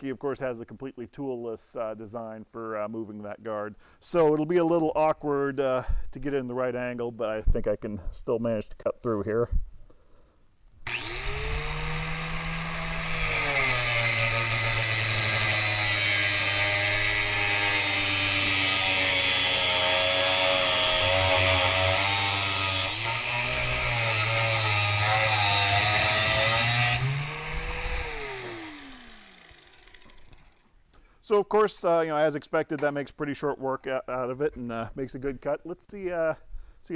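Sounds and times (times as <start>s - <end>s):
angle grinder cutting steel: 10.9s - 30.6s.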